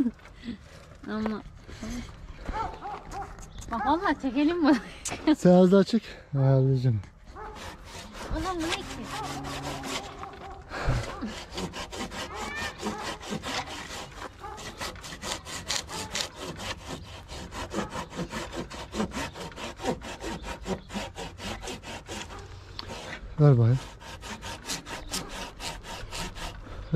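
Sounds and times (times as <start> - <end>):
hand saw cutting wood: 7.3 - 26.9.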